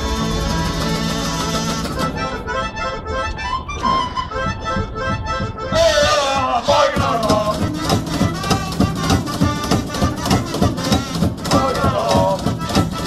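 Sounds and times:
melodica melody: 0.0 - 13.0
cardboard box drumming: 4.4 - 13.0
strummed acoustic guitar: 5.7 - 13.0.

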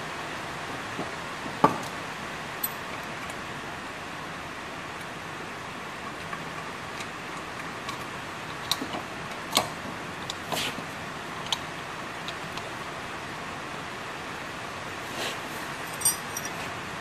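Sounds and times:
metal blade clicks and clinks: 15.9 - 16.6.

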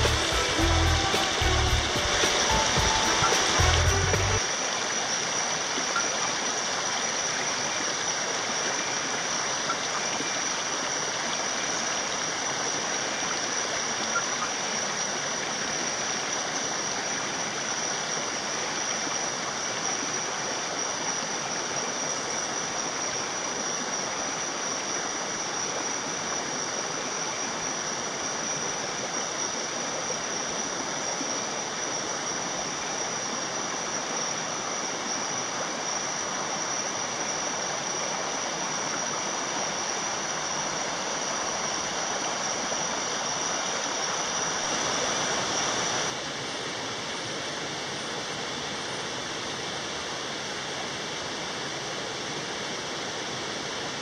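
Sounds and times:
high-pitched whine: 0.0 - 4.7, 41.2 - 46.7
stream running over stones: 0.0 - 54.0.

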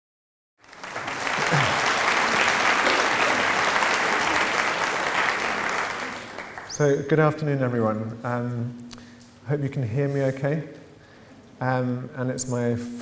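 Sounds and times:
audience applauding: 0.6 - 7.1.

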